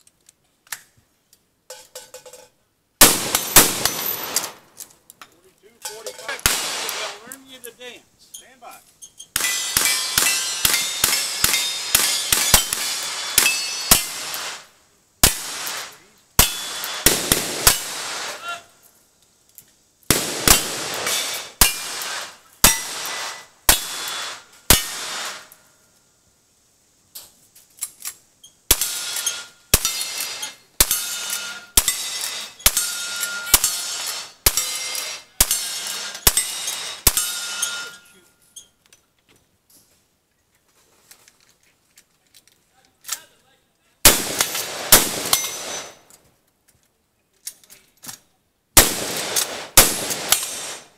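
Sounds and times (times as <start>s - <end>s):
revolver and rifle shots: 3.0s - 4.8s, 6.3s - 7.3s, 9.3s - 18.5s, 20.1s - 25.5s, 28.7s - 38.0s, 44.0s - 46.0s, 48.8s - 50.9s
steel target ringing: 9.4s - 14.2s, 16.4s - 17.1s, 28.7s - 38.1s.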